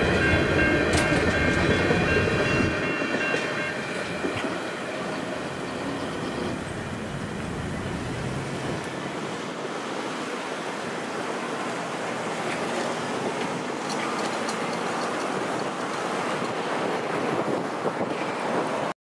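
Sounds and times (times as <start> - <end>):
wind noise on microphone: 6.4 - 9.8, 16.1 - 18.9.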